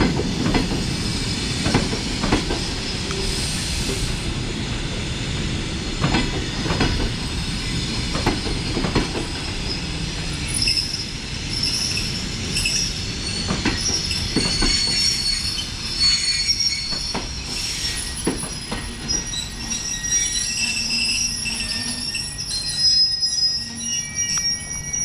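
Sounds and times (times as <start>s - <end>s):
low train rumble: 0.0s - 25.0s
train brakes squealing: 0.4s - 25.0s
train wheel knocks: 6.0s - 7.2s, 13.4s - 15.0s.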